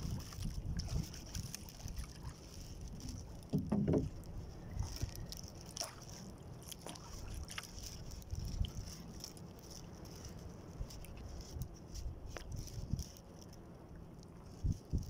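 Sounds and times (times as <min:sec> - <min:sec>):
low wind noise: 0:00.0 - 0:15.0
water lapping at hull: 0:00.0 - 0:15.0
boat bumping: 0:03.0 - 0:06.0.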